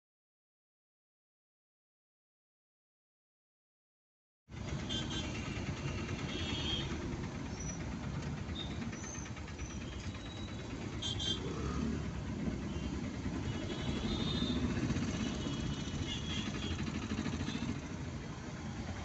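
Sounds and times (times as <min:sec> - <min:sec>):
idling engines rumble: 0:04.5 - 0:19.0.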